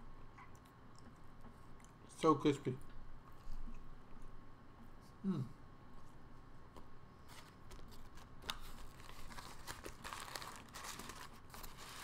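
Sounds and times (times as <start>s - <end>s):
paper food wrapper crinkling: 7.3s - 12.0s.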